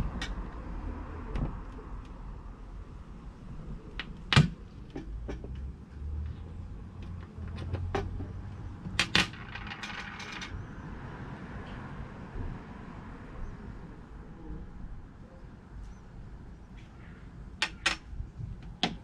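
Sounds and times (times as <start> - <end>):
metal parts clicking on hard surface: 8.8 - 10.6.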